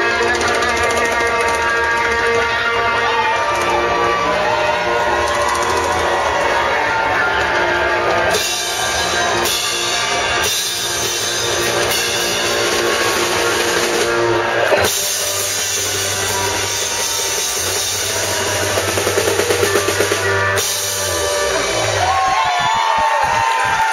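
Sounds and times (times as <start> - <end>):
live rock band playing: 0.0 - 23.8
drum fill: 7.3 - 23.5.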